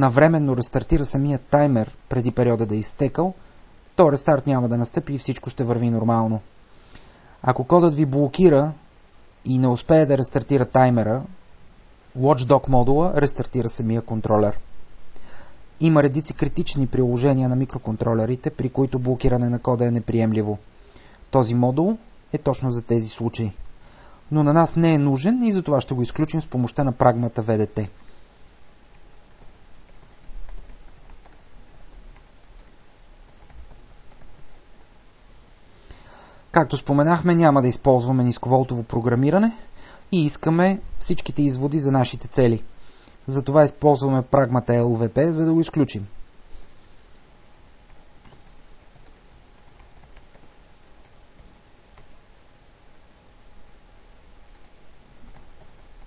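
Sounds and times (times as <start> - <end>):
steady background hiss: 0.0 - 56.0
keyboard typing: 28.9 - 34.6, 47.9 - 52.2, 54.5 - 56.0.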